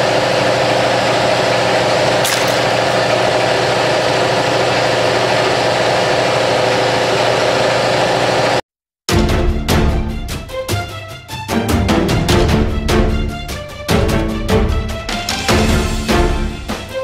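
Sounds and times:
pump motor humming: 1.4s - 4.5s.

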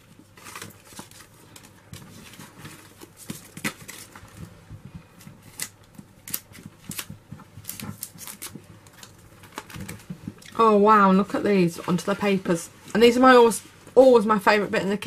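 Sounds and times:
paper rustling: 0.0s - 10.4s.

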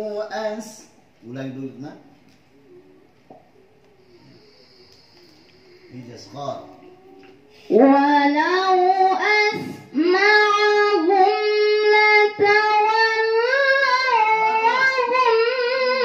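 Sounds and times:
woman reciting melodically: 0.0s - 1.0s, 4.0s - 16.0s
breath: 4.0s - 6.2s.

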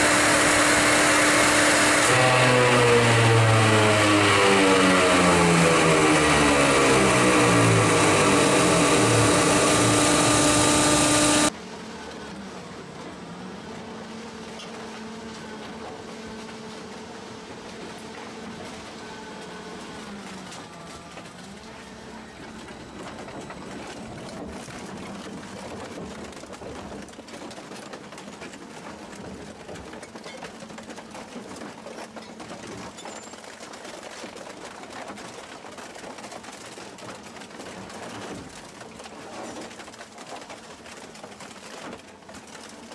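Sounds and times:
car shredder grinding: 0.0s - 11.6s
firewood processor running: 0.0s - 42.9s.

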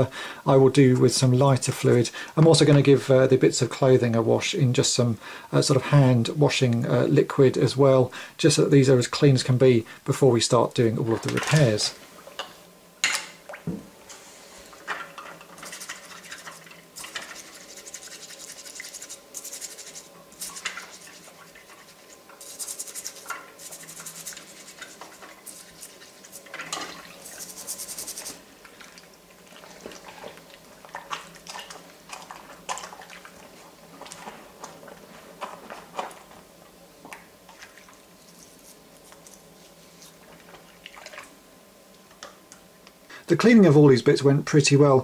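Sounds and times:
toothbrush scrubbing plastic: 15.6s - 28.4s, 38.2s - 40.2s.

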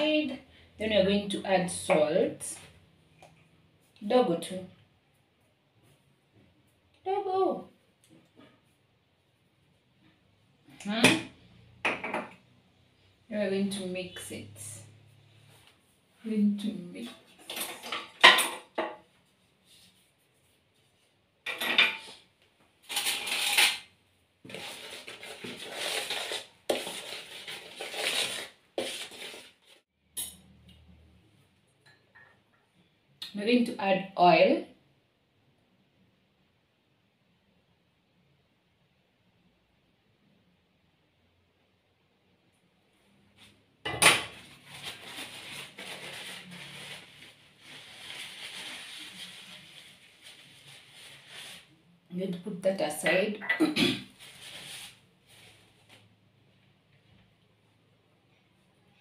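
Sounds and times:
spoon scraping dry mix: 24.5s - 29.8s
tissue paper rubbing glass cup: 24.5s - 29.8s, 44.4s - 51.8s, 54.1s - 55.8s.

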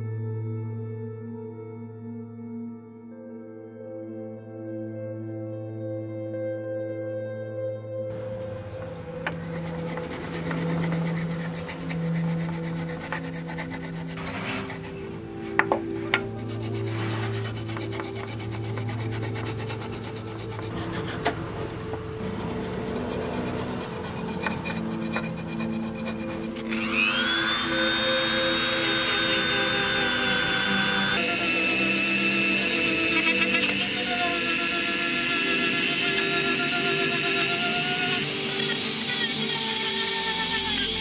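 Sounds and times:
sandpaper scraping rusty metal: 8.1s - 21.4s, 22.2s - 41.0s
rotary tool whine: 8.1s - 41.0s.

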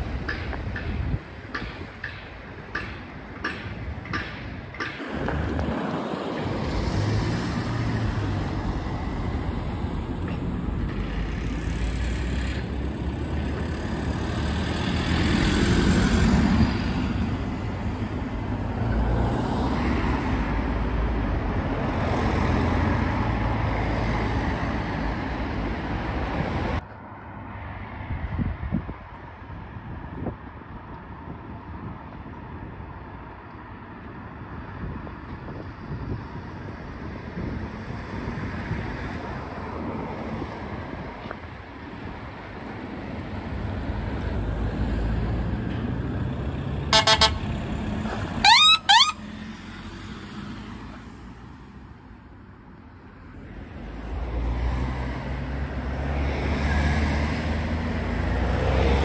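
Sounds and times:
road and tyre noise: 0.0s - 59.0s
heavy vehicle engine passing: 5.0s - 26.8s.

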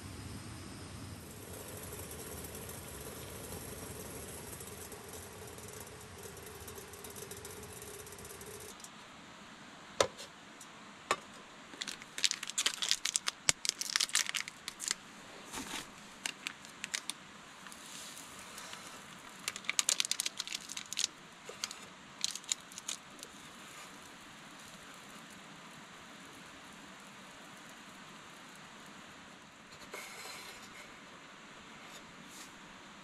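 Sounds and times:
faint steady hiss: 0.0s - 33.0s
crinkling and crackling: 11.7s - 27.9s.

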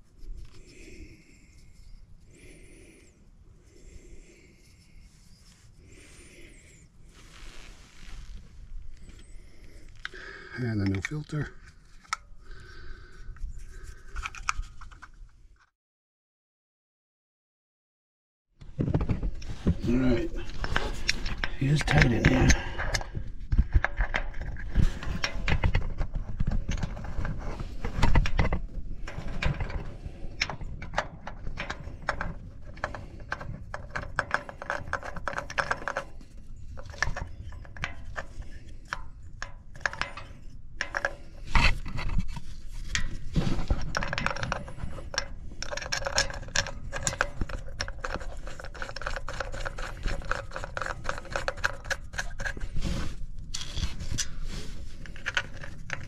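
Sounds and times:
hands working metal parts: 19.4s - 56.0s.

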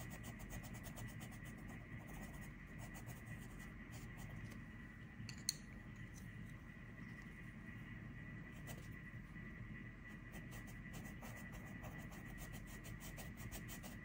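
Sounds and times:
pencil scratching on paper: 0.0s - 4.3s, 10.2s - 14.0s.

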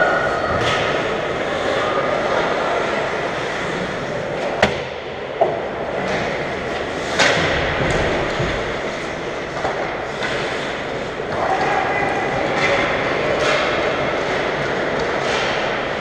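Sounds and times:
hockey sticks and puck clacking: 0.1s - 16.0s.

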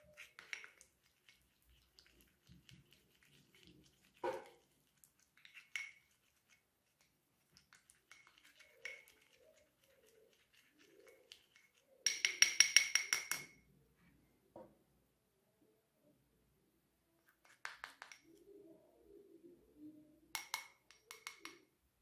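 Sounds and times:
spoon scraping glass bowl: 0.0s - 13.5s.

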